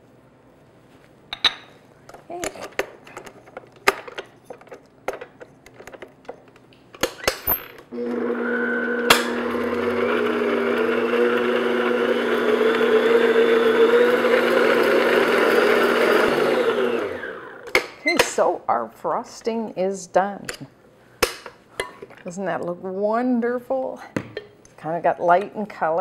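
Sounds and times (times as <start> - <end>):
stand mixer running: 7.9 - 17.6.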